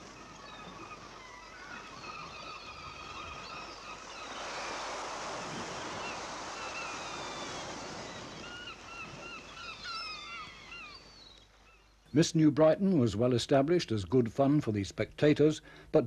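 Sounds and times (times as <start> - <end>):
waves washing in: 0.0 - 11.7
high wavering calls: 0.4 - 11.8.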